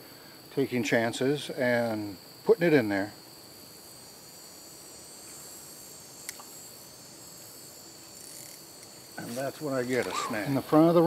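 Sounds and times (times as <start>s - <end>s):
crickets trilling: 0.0s - 11.0s
faint sharp click: 6.2s - 6.5s.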